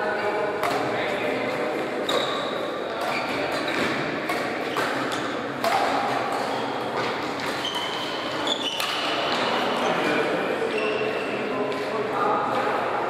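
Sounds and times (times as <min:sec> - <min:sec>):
racket hitting shuttlecock: 0:00.6 - 0:01.0, 0:02.0 - 0:09.5
shoes squeaking on court floor: 0:02.0 - 0:05.4, 0:06.2 - 0:11.9.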